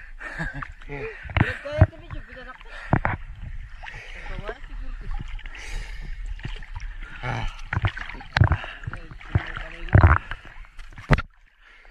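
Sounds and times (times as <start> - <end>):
sea water splashing: 0.0 - 11.9
sharp knocks and thumps: 1.2 - 2.2, 2.9 - 3.3, 7.7 - 11.3.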